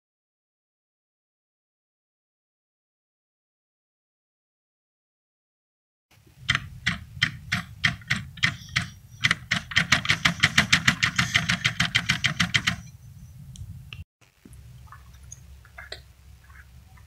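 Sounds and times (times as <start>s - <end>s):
satellite dish bearing clicking: 6.4s - 13.0s.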